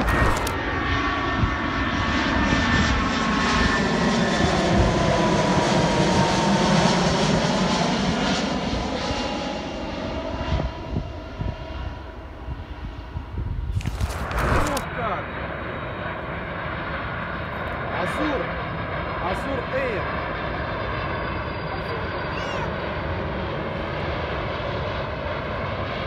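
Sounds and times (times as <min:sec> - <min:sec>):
engine whine sliding down: 0:00.0 - 0:00.9, 0:13.8 - 0:14.8
jet airliner passing overhead: 0:00.0 - 0:26.0.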